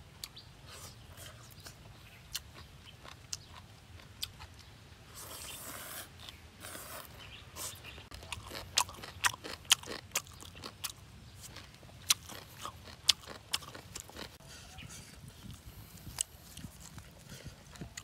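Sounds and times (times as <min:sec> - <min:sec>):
chewing with clicks: 0:01.6 - 0:04.7, 0:08.1 - 0:14.4
man slurping food: 0:05.1 - 0:07.8.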